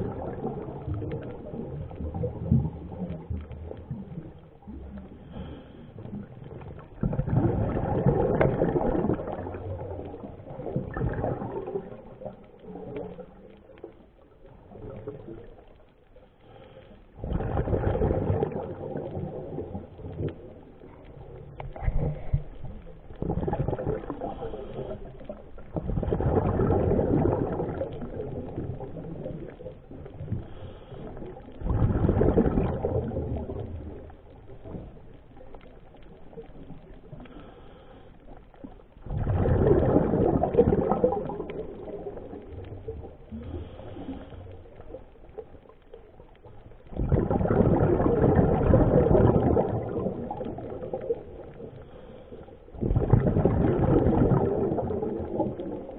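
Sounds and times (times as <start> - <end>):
exhaled bubbles underwater: 0.0 - 55.9.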